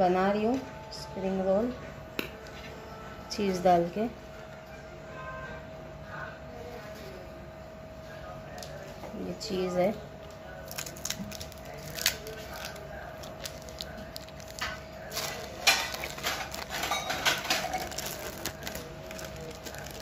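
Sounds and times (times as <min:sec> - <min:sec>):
faint hum: 0:00.0 - 0:20.0
plastic wrapping crinkling: 0:10.6 - 0:20.0.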